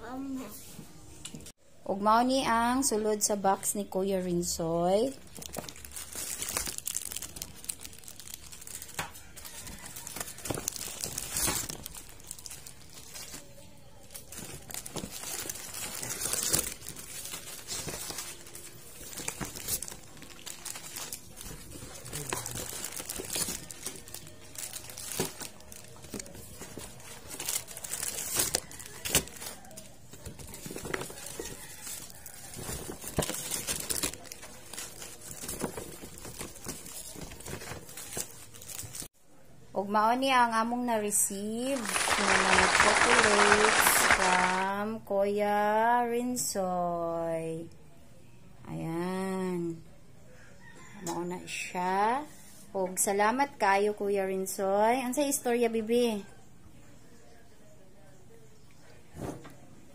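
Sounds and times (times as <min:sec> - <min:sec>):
paper and plastic wrappers rustling: 0:04.4 - 0:39.1, 0:41.7 - 0:44.7.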